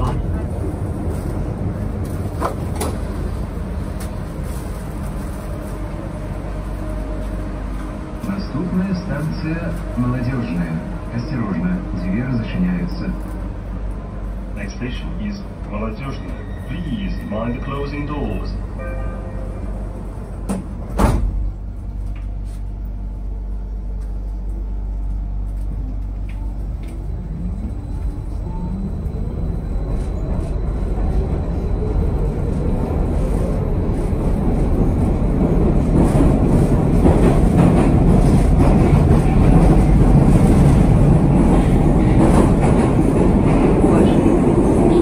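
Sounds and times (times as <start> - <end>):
train running rumble: 0.0 - 45.0
train doors slamming shut: 2.3 - 3.1, 20.4 - 21.6.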